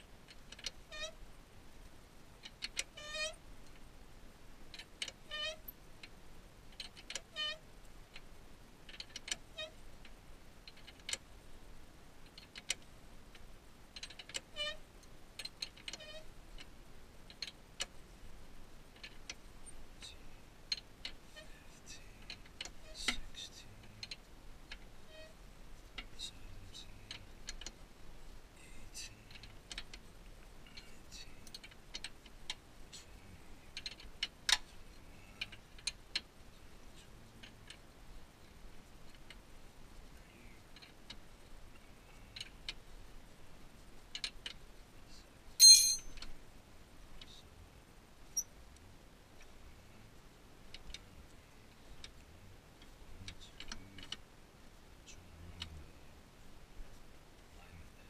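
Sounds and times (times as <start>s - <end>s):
metallic clink: 45.6s - 46.2s.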